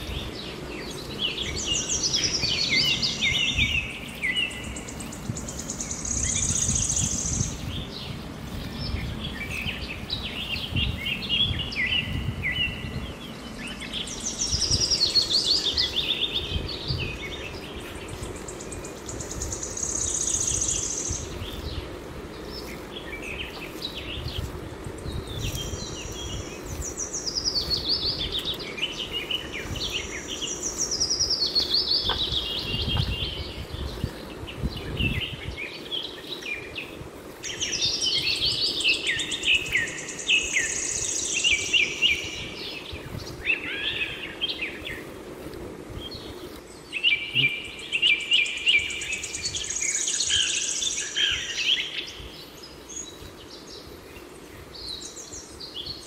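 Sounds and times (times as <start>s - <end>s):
birds singing: 0.0s - 56.0s.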